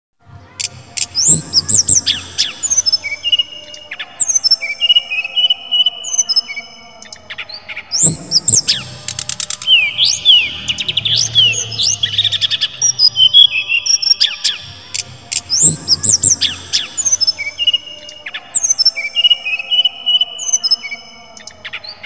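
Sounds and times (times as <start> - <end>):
bird singing high whistles: 7.9 - 14.6.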